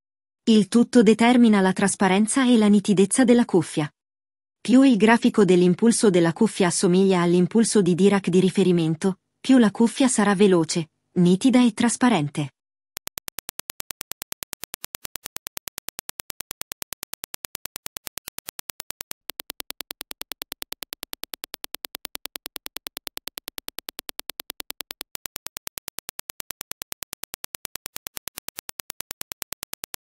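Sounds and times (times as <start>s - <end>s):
rapid train of sharp clicks: 13.0s - 30.0s.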